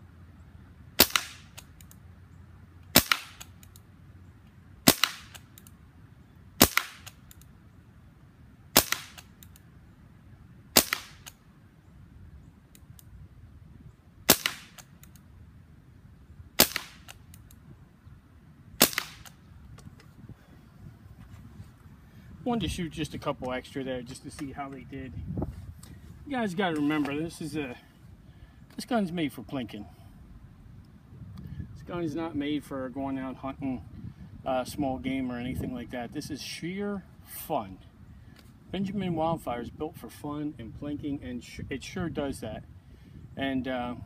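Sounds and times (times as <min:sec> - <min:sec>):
air rifle shots: 0:01.0 - 0:01.8, 0:02.9 - 0:03.8, 0:04.8 - 0:05.7, 0:06.6 - 0:07.4, 0:08.7 - 0:09.6, 0:10.7 - 0:11.4, 0:14.2 - 0:15.1, 0:16.6 - 0:17.4, 0:18.8 - 0:19.5.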